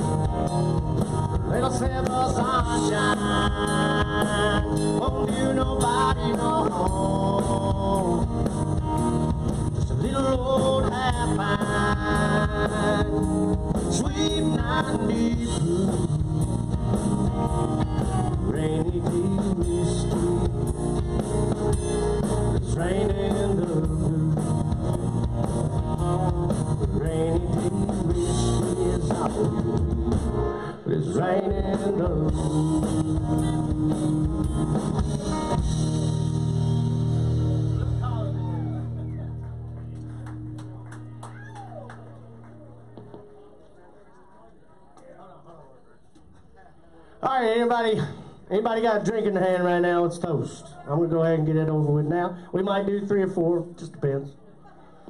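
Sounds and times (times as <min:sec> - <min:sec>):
drum kit steady beat: 0:00.0 - 0:30.4, 0:31.5 - 0:41.8
lead guitar with bent notes: 0:00.0 - 0:30.6, 0:31.4 - 0:43.5
bass guitar: 0:00.0 - 0:43.5.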